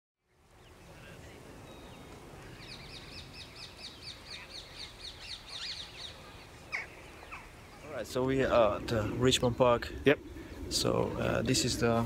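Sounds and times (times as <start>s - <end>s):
low background noise: 0.2s - 12.0s
bird chirping rapidly: 2.6s - 7.8s.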